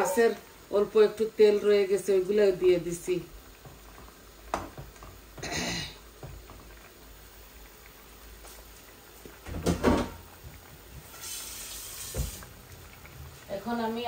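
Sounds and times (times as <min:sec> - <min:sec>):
curry simmering: 0:00.0 - 0:14.0.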